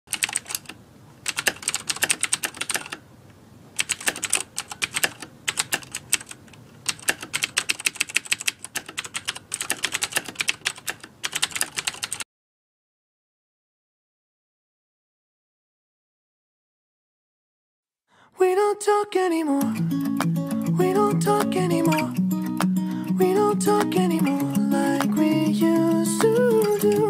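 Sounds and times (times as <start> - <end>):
computer keyboard typing: 0.1 - 3.0, 3.8 - 12.2.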